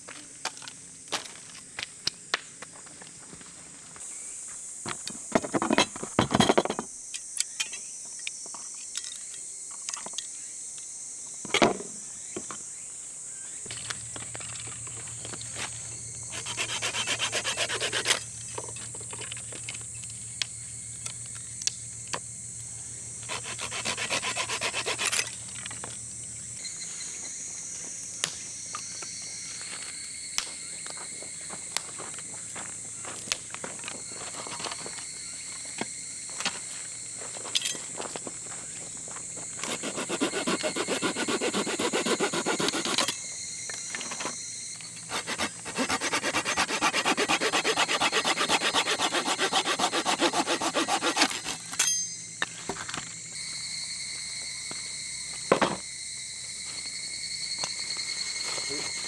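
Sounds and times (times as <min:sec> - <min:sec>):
blade rasping through sticks: 0:16.3 - 0:18.3, 0:23.3 - 0:25.4, 0:39.6 - 0:43.2, 0:45.1 - 0:51.8.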